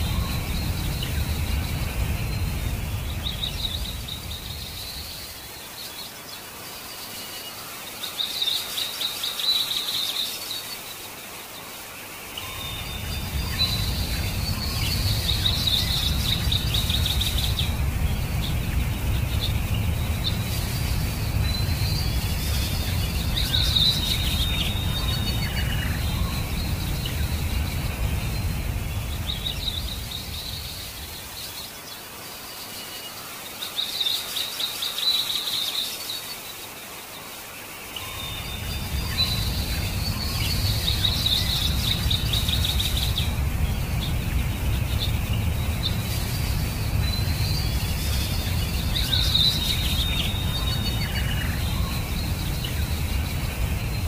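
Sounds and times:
bird singing rapid trills: 0.0 - 11.0, 12.3 - 36.6, 37.9 - 54.0
stream water rushing: 0.0 - 54.0.

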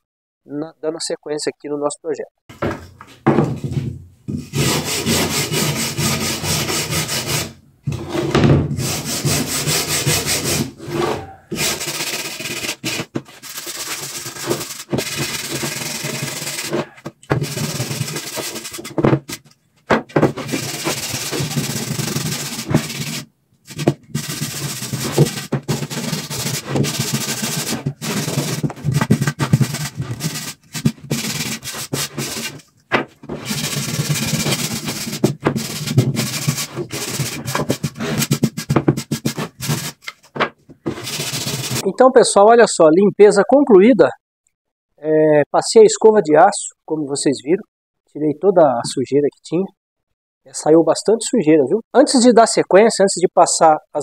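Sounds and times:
wire brush scrubbing wood: 4.5 - 7.6, 8.8 - 19.5, 20.1 - 40.3, 40.9 - 41.8.

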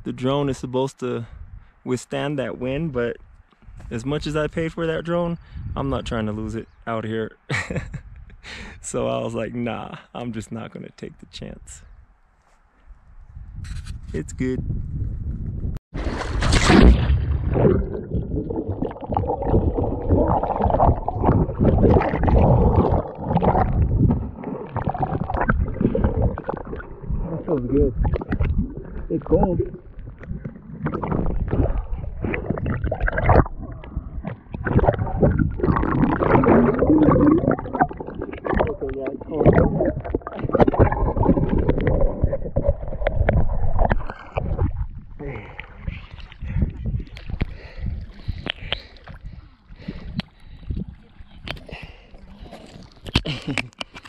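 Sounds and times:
muffled underwater sloshing: 16.0 - 53.8
small crackles and knocks: 52.9 - 54.0.

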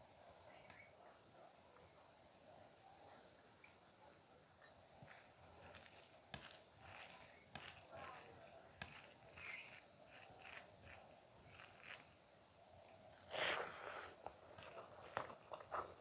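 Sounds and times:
fingers squelching rice: 5.0 - 16.0.

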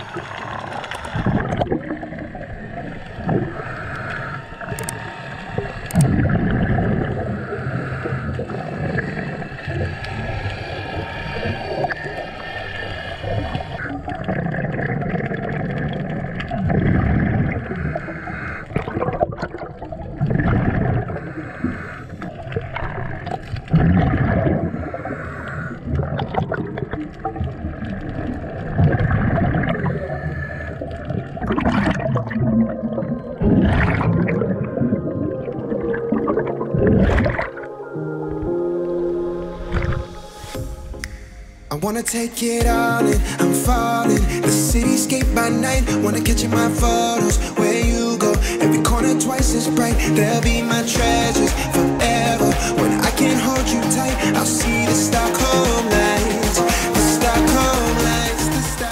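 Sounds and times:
bubbles gurgling: 0.0 - 38.6, 39.3 - 41.1
diver breathing through regulator: 3.0 - 13.9, 17.7 - 19.0, 21.0 - 22.7, 24.6 - 26.2, 56.6 - 57.5.

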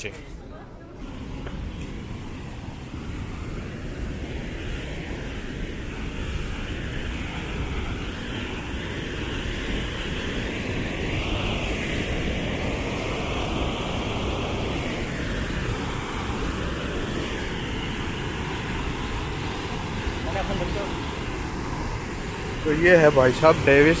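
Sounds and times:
waterfall roaring: 10.0 - 24.0.

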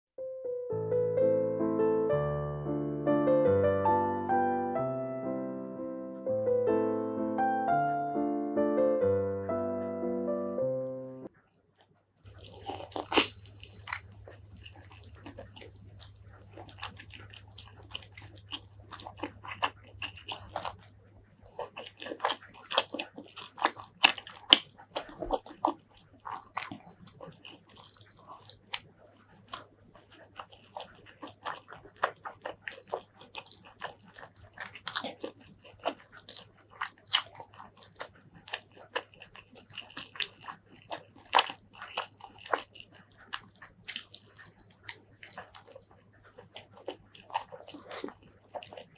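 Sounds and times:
piano tune: 0.1 - 11.3
faint low hum: 0.4 - 48.9
wet chewing and mouth clicks: 11.3 - 48.9.

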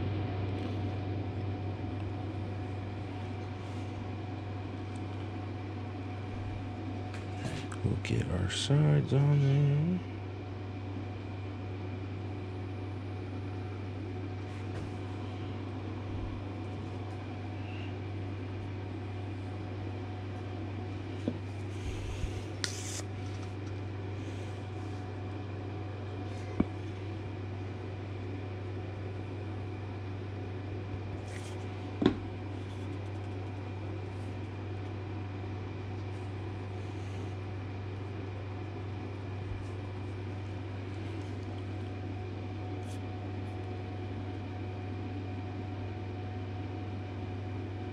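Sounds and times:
motor hum: 0.0 - 47.9.

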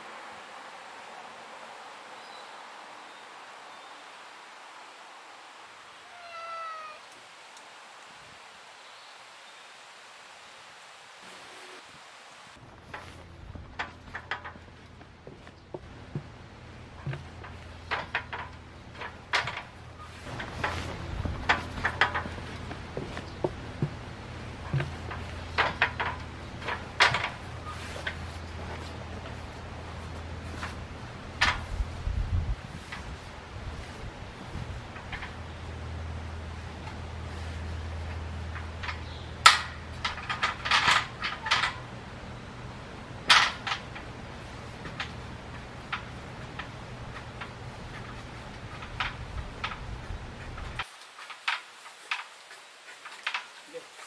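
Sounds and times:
aluminium ladder knocking and clattering: 12.6 - 52.3.

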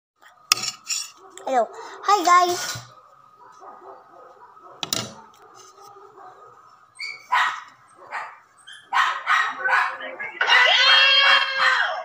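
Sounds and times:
dog barking: 1.2 - 2.3, 2.9 - 6.7, 7.3 - 12.0.

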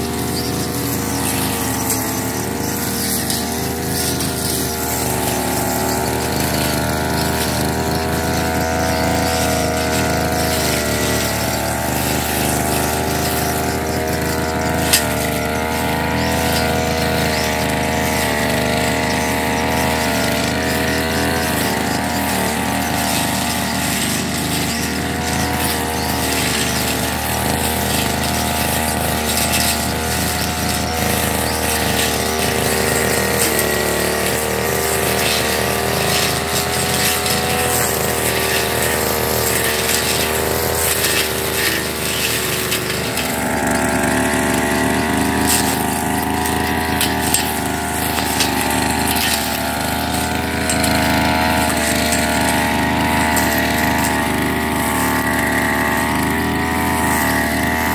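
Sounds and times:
brush cutter cutting grass: 0.0 - 57.9.

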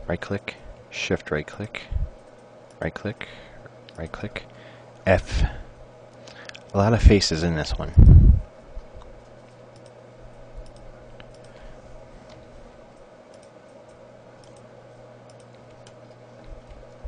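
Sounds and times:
low electrical hum: 0.0 - 17.0
low rumble on microphone: 1.8 - 2.2, 7.0 - 9.0.

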